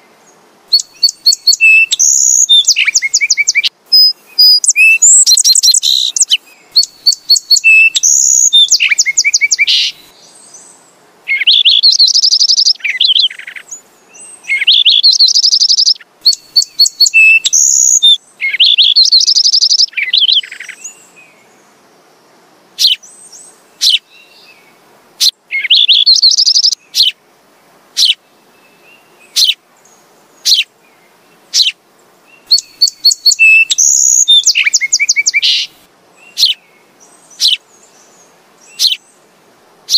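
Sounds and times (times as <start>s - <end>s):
sparrow sharp chirps: 0.8s - 10.7s, 11.3s - 21.0s, 22.8s - 24.4s, 25.2s - 27.2s, 28.0s - 28.2s, 29.3s - 29.6s, 30.4s - 30.7s, 31.5s - 31.8s, 32.4s - 37.8s, 38.7s - 39.1s
sparrow trills: 0.8s - 10.7s, 11.3s - 21.0s, 22.8s - 24.5s, 25.2s - 27.2s, 28.0s - 28.2s, 29.3s - 29.6s, 30.4s - 30.7s, 31.5s - 31.8s, 32.4s - 39.2s.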